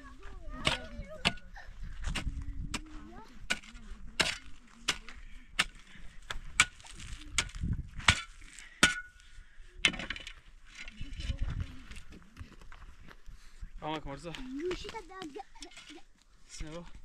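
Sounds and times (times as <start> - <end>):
shovel digging in stony soil: 0.6 - 9.2, 9.8 - 12.1, 14.8 - 16.7.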